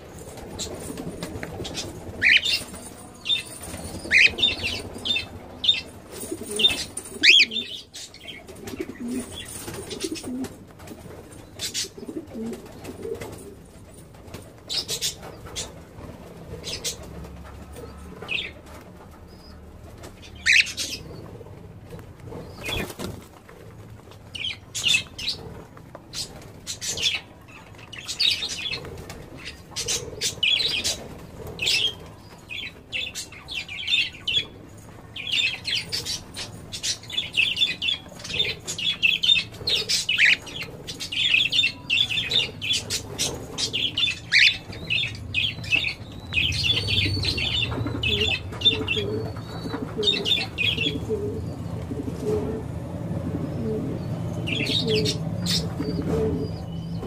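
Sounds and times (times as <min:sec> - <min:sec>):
parrots chirping: 0:00.6 - 0:10.3, 0:16.6 - 0:21.4, 0:35.2 - 0:51.6, 0:54.0 - 0:57.0.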